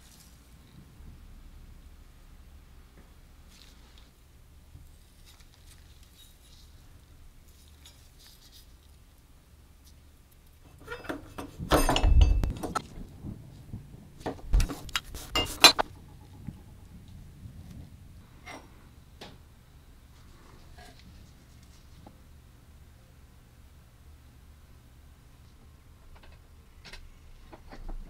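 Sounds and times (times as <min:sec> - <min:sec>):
metal parts clinking and rattling: 0:10.7 - 0:12.8.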